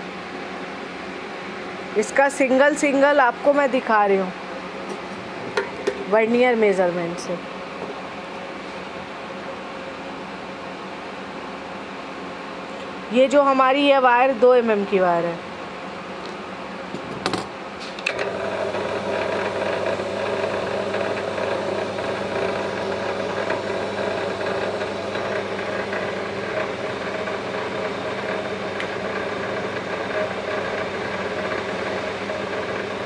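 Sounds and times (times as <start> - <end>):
electric motor humming: 18.1 - 33.0.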